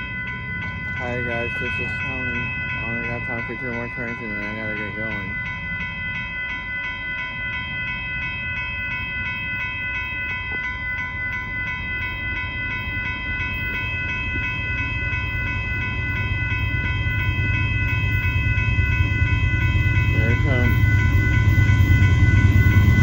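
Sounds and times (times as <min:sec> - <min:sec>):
freight train rumble: 0:00.0 - 0:23.0
railroad crossing bell dinging: 0:00.0 - 0:23.0.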